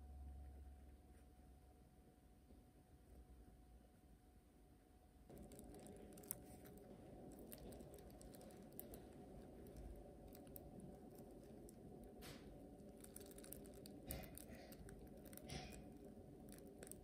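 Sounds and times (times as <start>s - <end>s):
low steady hum: 0.0s - 17.0s
plastic piping bag crinkling: 5.3s - 17.0s.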